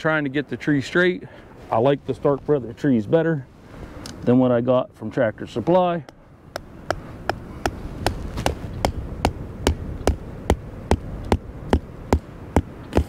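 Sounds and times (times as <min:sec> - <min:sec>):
sharp knocks: 0:06.6 - 0:13.0.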